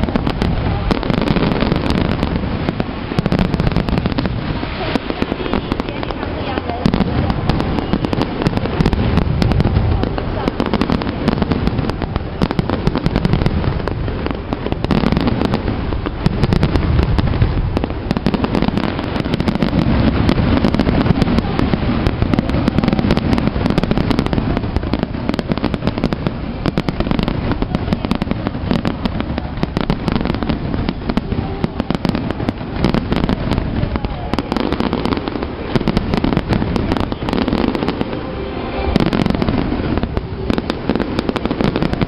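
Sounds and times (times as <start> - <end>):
fireworks crackling: 0.0 - 42.0
fireworks deep booms: 0.0 - 42.0.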